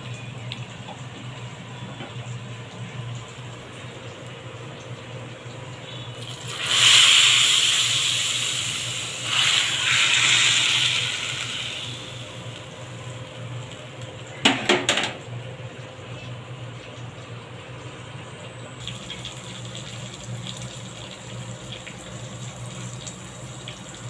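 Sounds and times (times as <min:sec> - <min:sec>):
hot oil sizzling: 0:02.6 - 0:15.8, 0:18.8 - 0:24.0.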